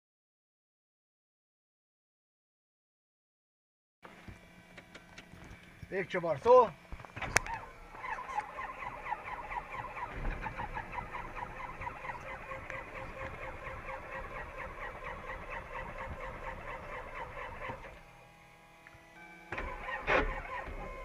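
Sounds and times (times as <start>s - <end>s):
aircraft engine cranking: 4.1s - 18.2s, 18.9s - 21.0s
click: 7.2s - 7.6s.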